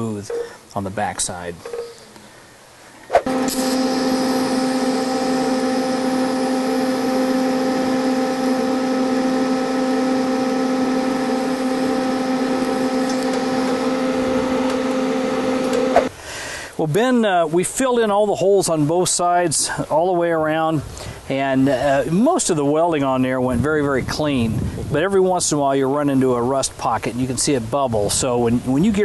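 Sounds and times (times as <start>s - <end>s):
welding arc crackling and buzzing: 3.3s - 16.1s.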